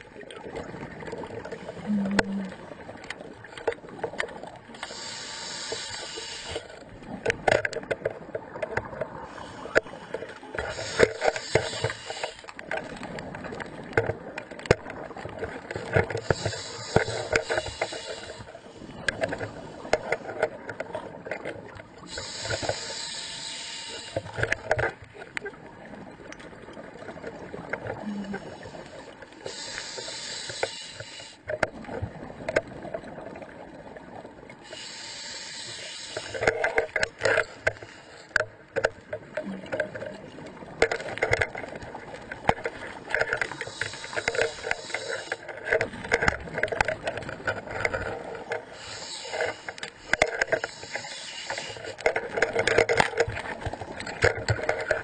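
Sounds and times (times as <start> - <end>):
bubbling underwater: 0.4 - 3.4, 39.3 - 40.8
diver breathing through regulator: 4.8 - 6.8, 10.6 - 12.5, 16.2 - 19.9, 22.0 - 24.6, 28.1 - 31.4, 34.6 - 36.7, 43.5 - 45.4, 48.6 - 52.0.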